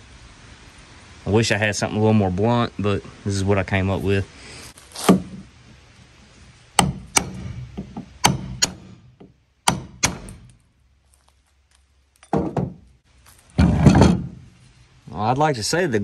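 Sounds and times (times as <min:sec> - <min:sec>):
dull knocks: 0:06.8 - 0:10.4, 0:12.3 - 0:12.9
hammer striking steel punch: 0:06.8 - 0:10.6.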